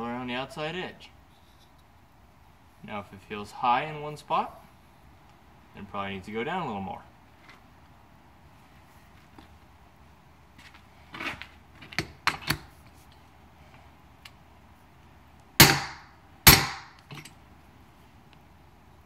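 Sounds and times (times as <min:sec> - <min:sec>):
light metal clinks: 0:17.0 - 0:17.4.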